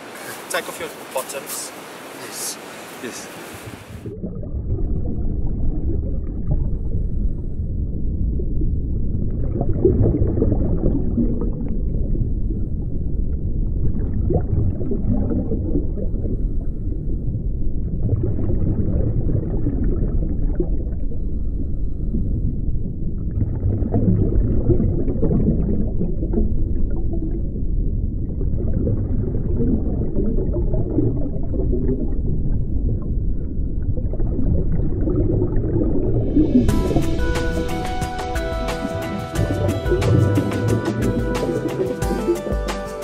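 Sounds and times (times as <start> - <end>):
waves breaking: 0.0 - 4.2, 34.4 - 42.8
muffled ocean surf: 0.0 - 43.0.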